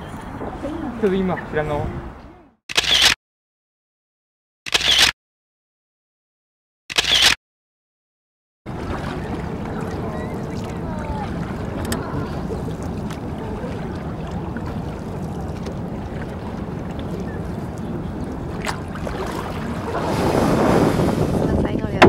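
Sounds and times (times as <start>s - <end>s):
wind rumbling on microphone: 0.0s - 2.5s, 8.7s - 22.0s.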